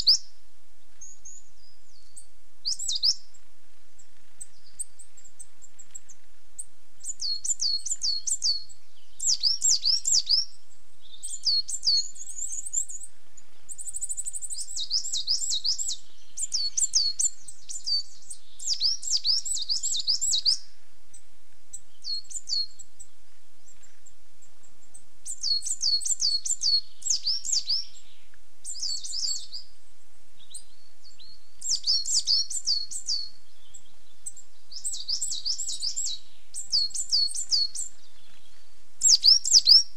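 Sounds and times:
coal tit singing: 7.0s - 10.5s, 25.2s - 28.0s.

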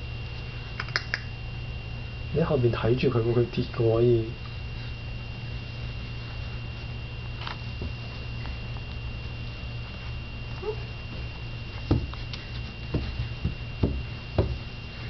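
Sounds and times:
steady low hum: 0.0s - 15.0s
soft thumps on carpeted stairs: 11.0s - 14.8s.

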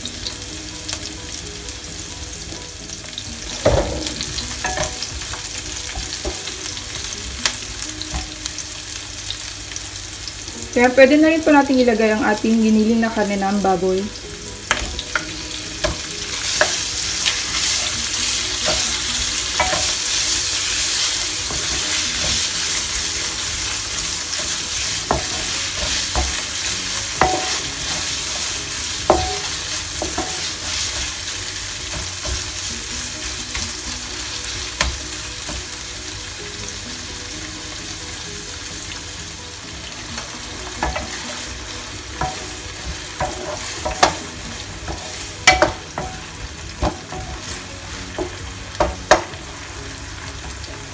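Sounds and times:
meat sizzling in a frying pan: 0.0s - 50.9s
spatula scraping a pan: 15.0s - 34.0s, 42.2s - 48.4s.

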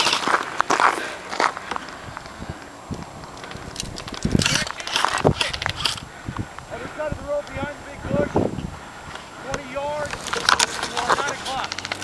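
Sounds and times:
footsteps crunching on gravel: 0.0s - 5.9s, 9.1s - 12.0s.

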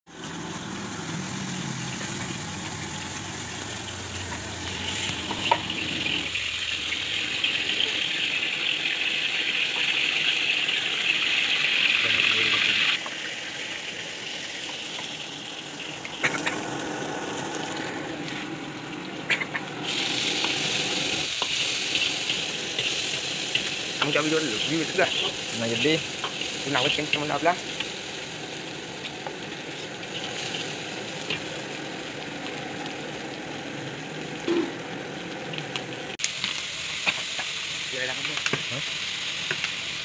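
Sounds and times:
oil sizzling in a wok: 0.1s - 40.0s.

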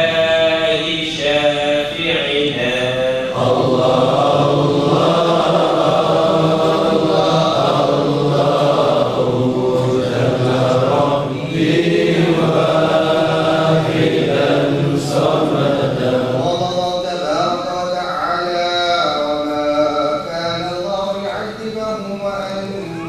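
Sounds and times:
men chanting together: 0.0s - 17.7s.

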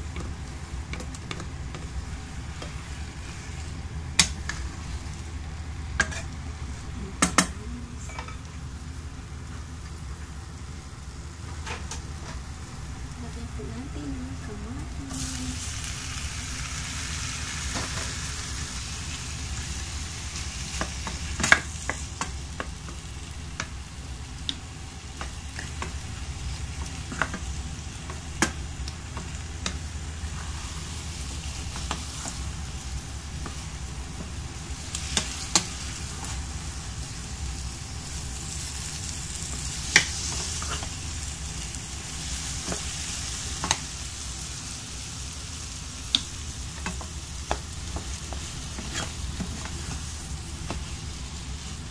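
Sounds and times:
eggs sizzling in frying pan: 0.0s - 51.9s
steady low hum: 0.0s - 51.9s
spatula clicking and scraping pan: 6.0s - 6.4s, 39.5s - 41.0s, 46.1s - 51.0s.

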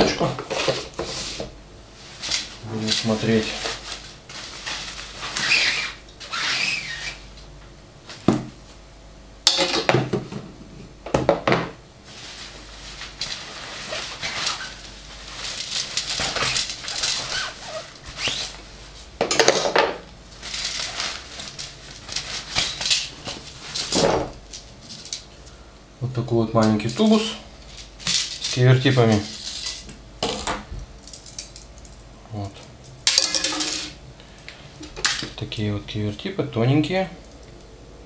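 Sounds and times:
cloth cover rustling: 2.0s - 7.2s, 12.0s - 19.2s, 20.3s - 24.0s.

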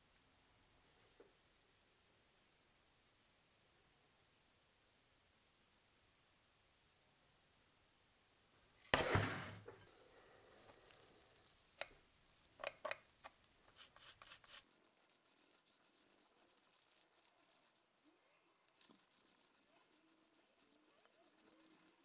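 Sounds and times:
toothbrush scrubbing plastic: 12.6s - 17.9s, 18.6s - 22.0s.

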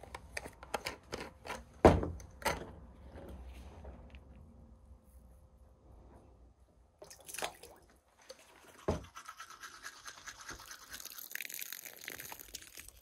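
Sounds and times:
toothbrush scrubbing teeth: 8.3s - 13.0s.

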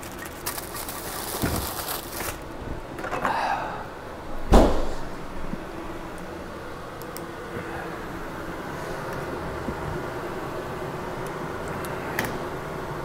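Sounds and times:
refrigerator door shutting: 1.4s - 2.4s, 4.4s - 5.2s.

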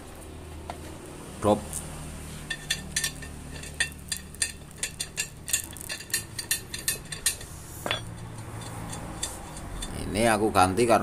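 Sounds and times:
metal scrape: 2.3s - 10.2s.

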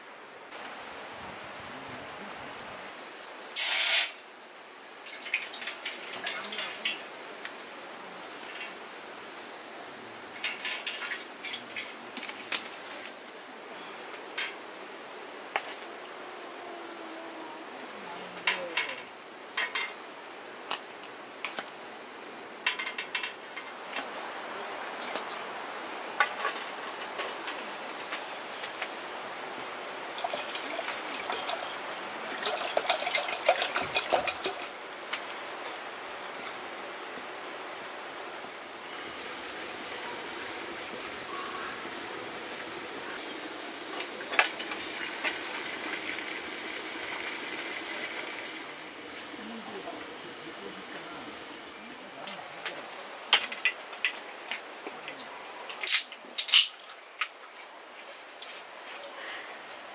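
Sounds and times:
can hissing bursts: 3.6s - 4.2s, 38.6s - 51.9s
water pouring into metal pot: 30.2s - 34.7s, 41.8s - 49.3s.

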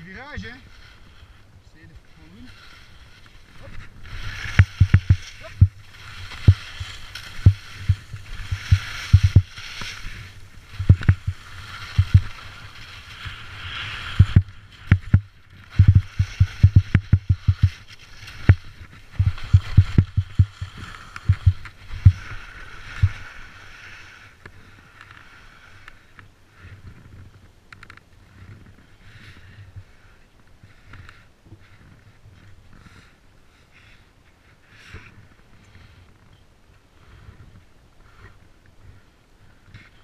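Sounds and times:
skis scraping on hard snow: 0.0s - 27.4s
sharp low thumps: 4.6s - 5.8s, 7.4s - 9.5s, 10.8s - 12.2s, 14.2s - 17.7s, 19.2s - 22.2s.

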